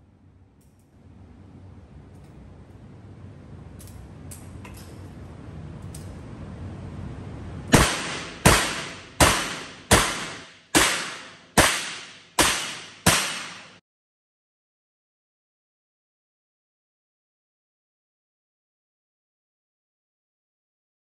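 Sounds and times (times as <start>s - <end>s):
revolver shots echoing: 7.7s - 13.8s.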